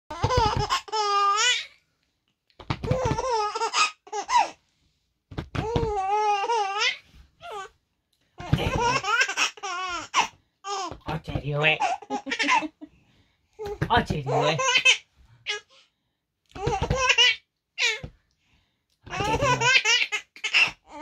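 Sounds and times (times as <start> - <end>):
baby laughing: 0.1 - 1.7, 2.7 - 4.6, 5.6 - 7.7, 8.4 - 11.0, 11.8 - 12.9, 13.6 - 15.7, 16.5 - 18.1, 19.1 - 21.0.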